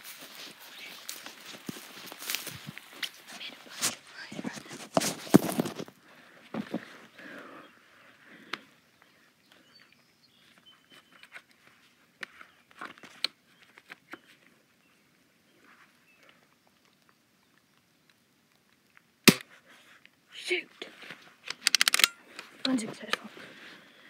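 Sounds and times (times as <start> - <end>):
soft rustling: 0.0 - 7.1
gunshot: 19.3 - 19.5.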